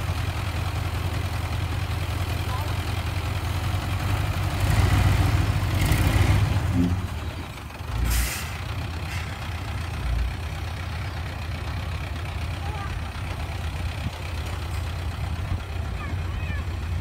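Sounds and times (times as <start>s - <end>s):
diesel truck engine running: 0.0s - 17.0s
air brake hiss: 8.0s - 9.4s.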